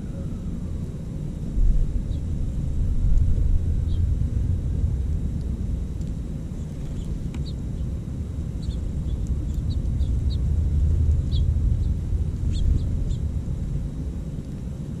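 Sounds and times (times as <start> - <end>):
steady low rumble: 0.0 - 15.0
songbirds chirping: 1.8 - 4.4, 5.8 - 14.6.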